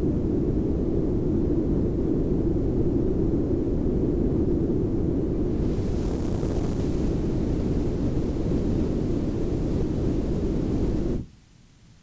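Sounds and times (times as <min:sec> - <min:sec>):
filtered synth noise hiss: 0:05.2 - 0:12.0.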